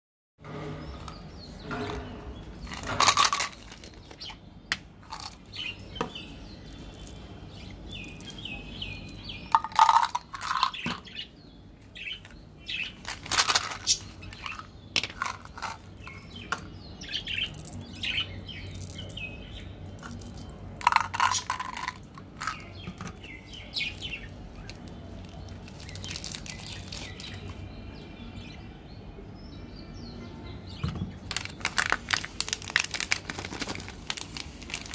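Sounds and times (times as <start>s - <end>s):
birds chirping faintly: 0.4s - 34.9s
candy packaging rustling: 2.6s - 4.4s, 12.9s - 16.0s, 23.8s - 27.6s, 31.2s - 34.9s
candy shaken out of container: 2.7s - 4.1s, 13.0s - 15.9s, 20.0s - 22.6s, 31.3s - 34.9s
wrapper tearing and crinkling: 25.2s - 27.4s, 31.3s - 34.9s.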